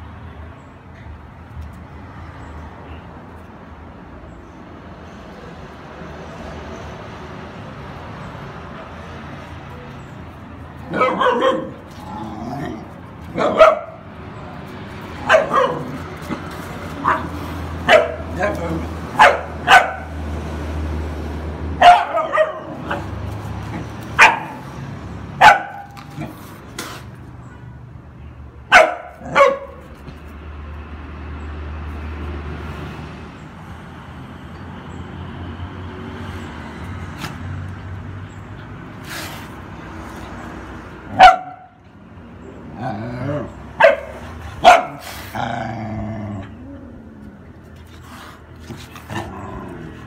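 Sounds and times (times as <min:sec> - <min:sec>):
dog barking: 0:10.9 - 0:11.8, 0:13.4 - 0:14.0, 0:15.2 - 0:15.9, 0:17.0 - 0:18.5, 0:19.2 - 0:20.2, 0:21.8 - 0:23.0, 0:24.2 - 0:24.6, 0:25.4 - 0:25.9, 0:28.7 - 0:29.8, 0:41.1 - 0:41.8, 0:43.8 - 0:45.0.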